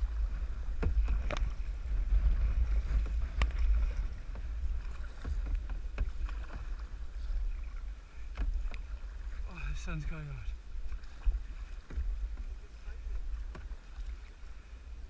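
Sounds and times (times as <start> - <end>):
paddles splashing in water: 0.0 - 15.0
wind buffeting microphone: 0.0 - 15.0.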